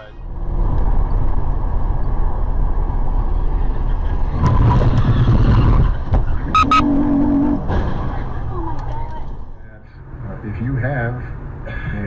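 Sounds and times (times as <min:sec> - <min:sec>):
road and engine noise in car: 0:00.0 - 0:12.0
short sharp beeps: 0:06.5 - 0:06.9.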